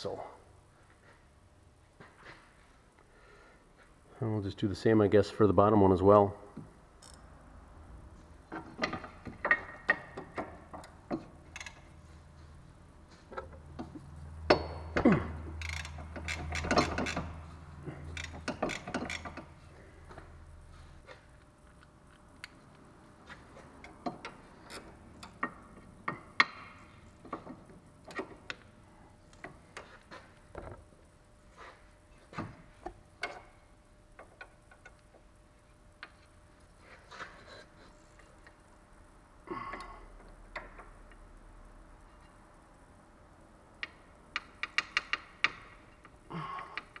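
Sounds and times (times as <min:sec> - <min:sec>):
ratchet wrench clicking: 0:07.0 - 0:07.2, 0:11.5 - 0:11.8, 0:15.6 - 0:17.4, 0:18.1 - 0:19.5.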